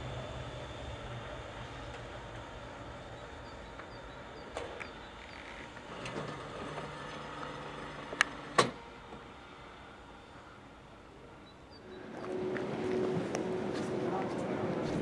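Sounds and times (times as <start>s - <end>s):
electric railcar humming: 0.0s - 15.0s
sharp clacks of railcar: 3.2s - 9.3s.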